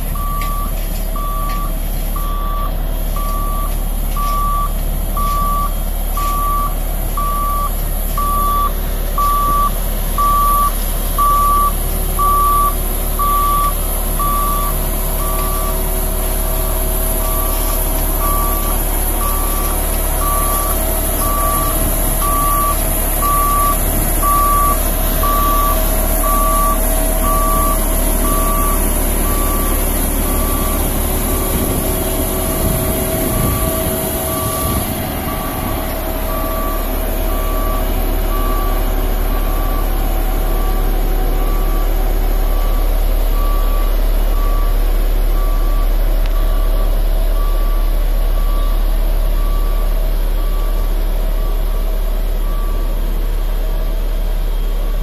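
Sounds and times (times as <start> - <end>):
reversing alarm beeping: 0.0 - 53.8
diesel engine running: 0.0 - 55.0.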